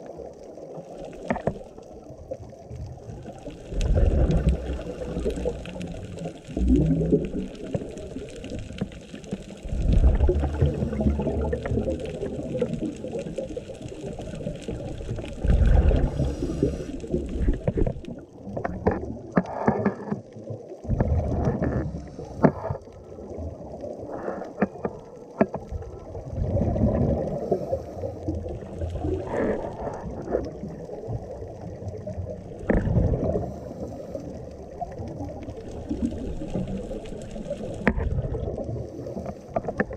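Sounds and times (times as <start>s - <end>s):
crackling bubble noise: 0.0s - 39.9s
exhaled bubbles: 0.0s - 39.9s
scuba breathing through regulator: 15.8s - 17.6s, 27.3s - 28.3s, 29.2s - 30.4s, 33.3s - 34.4s.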